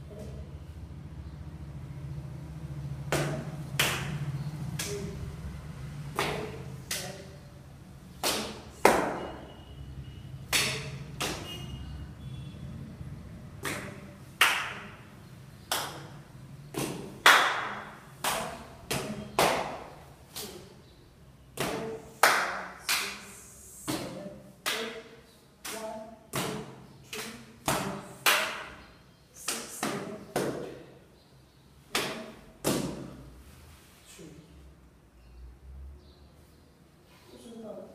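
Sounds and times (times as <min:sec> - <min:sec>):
hand claps: 0:03.1 - 0:05.1, 0:06.1 - 0:07.2, 0:08.2 - 0:09.3, 0:10.5 - 0:11.6, 0:13.6 - 0:14.9, 0:15.7 - 0:16.1, 0:16.7 - 0:20.6, 0:21.6 - 0:23.3.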